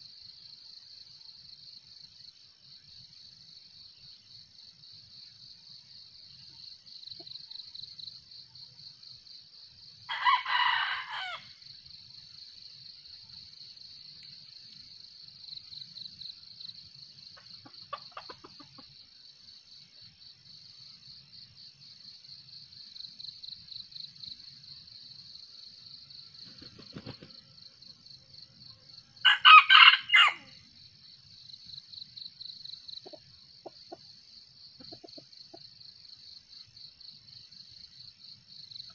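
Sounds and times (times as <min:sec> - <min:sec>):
insects chirring: 0:00.0 - 0:38.9
rooster crowing: 0:10.1 - 0:11.5, 0:29.2 - 0:30.5.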